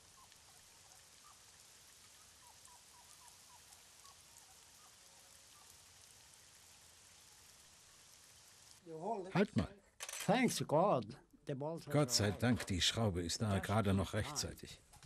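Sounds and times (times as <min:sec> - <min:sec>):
steady hiss: 0:00.0 - 0:09.0.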